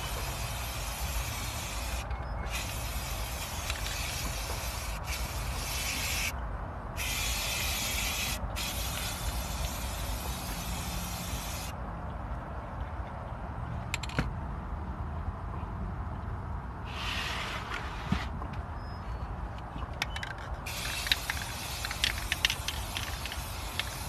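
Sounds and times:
spray paint can hissing: 0.0s - 6.4s, 7.0s - 11.8s, 20.6s - 24.0s.

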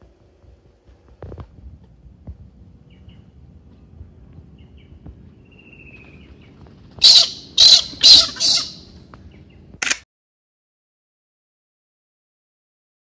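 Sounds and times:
cockatoo screeching: 7.0s - 8.9s.

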